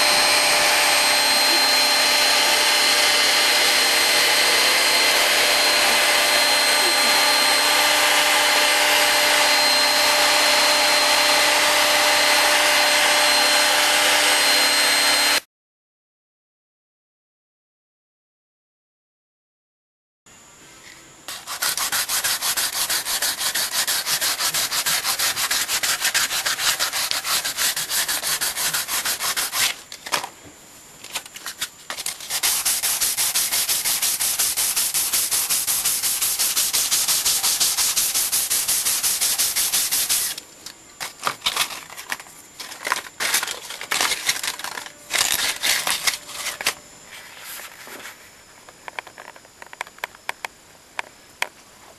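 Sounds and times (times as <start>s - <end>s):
sandpaper rubbing on wood: 0.0s - 11.7s, 21.3s - 29.9s, 31.5s - 40.4s.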